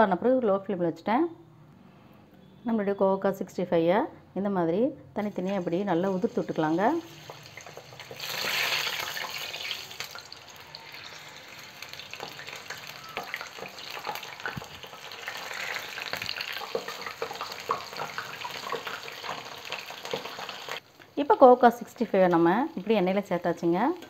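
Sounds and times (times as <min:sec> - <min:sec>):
batter slices deep-frying in oil: 0:05.4 - 0:20.8.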